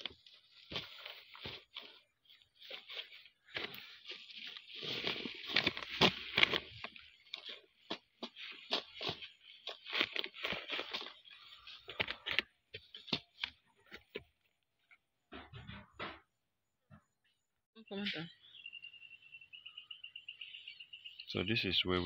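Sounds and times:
dry grass and sack crackling: 0.0 - 14.2.

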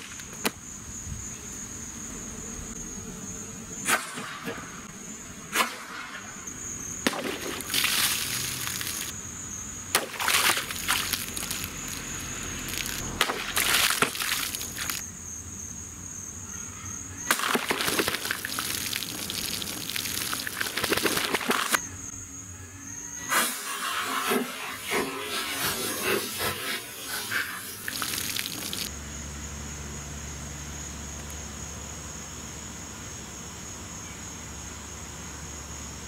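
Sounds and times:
high insect drone: 0.0 - 36.0
water splashing and trickling: 7.2 - 9.1, 10.0 - 15.0, 17.4 - 21.8, 27.4 - 28.9.

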